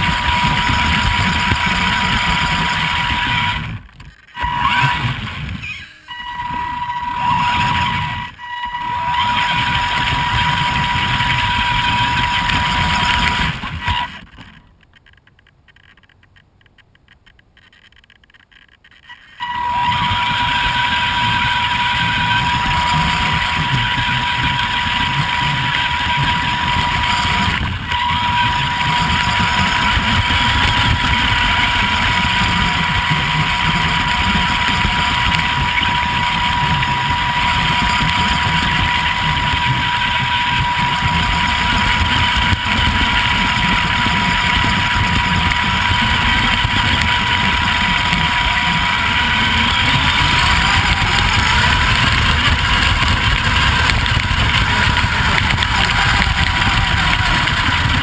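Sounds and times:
electric motor and gears whining: 0:00.0 - 0:16.1, 0:17.6 - 0:58.0
thin high tone: 0:04.3 - 0:14.2, 0:19.0 - 0:58.0
rushing noise: 0:19.0 - 0:58.0.

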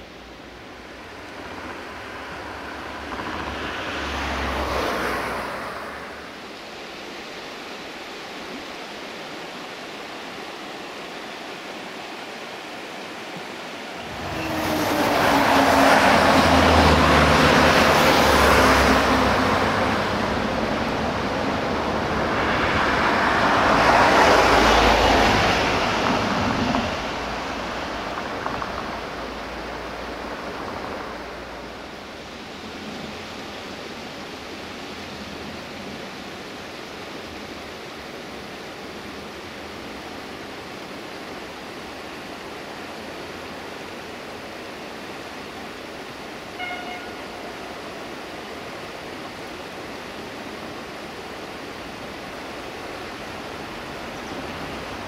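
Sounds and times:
vehicles passing: 0:00.0 - 0:06.5, 0:14.0 - 0:36.5, 0:44.6 - 0:55.0.

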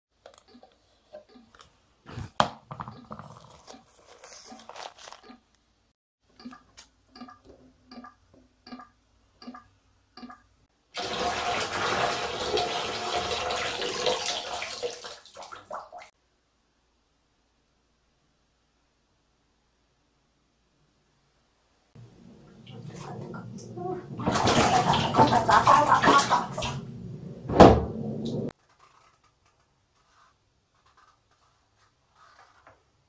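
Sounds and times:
packet rustling and clicking: 0:01.5 - 0:05.6
water running into plastic basin: 0:11.0 - 0:16.1, 0:22.0 - 0:27.3.

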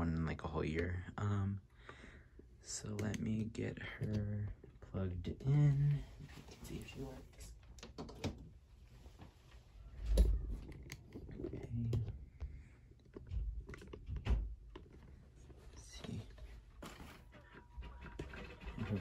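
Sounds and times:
handling clicks and knocks: 0:10.2 - 0:19.0.

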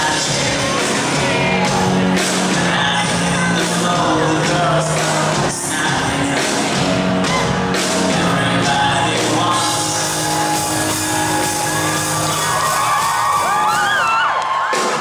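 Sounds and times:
man singing: 0:00.0 - 0:12.3
live rock band: 0:00.0 - 0:15.0.

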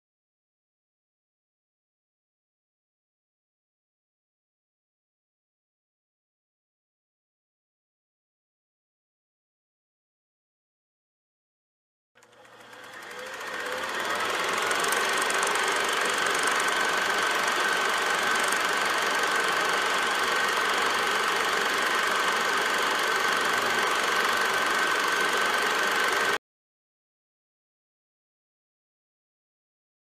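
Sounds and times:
film projector clattering: 0:12.2 - 0:26.4
projector high whine: 0:12.2 - 0:26.4.

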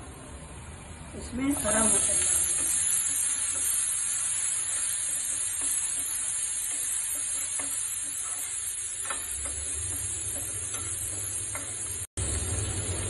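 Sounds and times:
peas sizzling in frying pan: 0:01.5 - 0:13.0
utensil tapping pan: 0:04.7 - 0:12.0.

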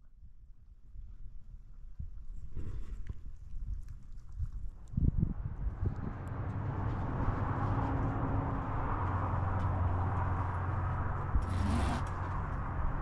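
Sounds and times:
low engine-like hum: 0:05.1 - 0:13.0.

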